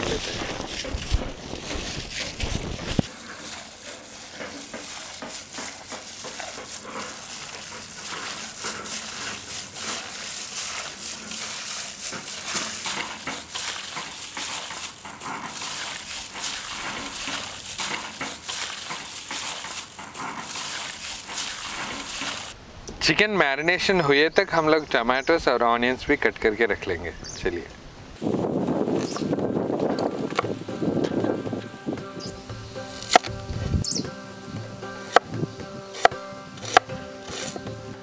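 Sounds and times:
wind rumble on microphone: 0.0s - 3.1s, 27.8s - 32.5s, 33.3s - 34.7s
wet squishes of mixing meat: 0.0s - 22.6s.

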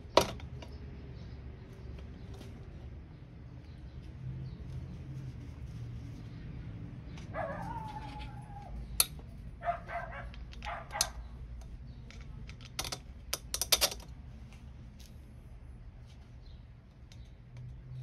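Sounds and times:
dog whining: 7.3s - 8.8s.

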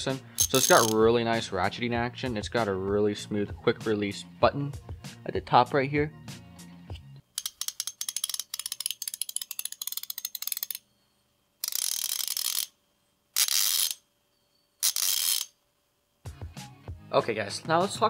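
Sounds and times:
ratchet clicking: 0.4s - 1.0s, 7.4s - 10.8s, 11.6s - 12.8s, 13.4s - 14.0s, 14.8s - 15.6s.

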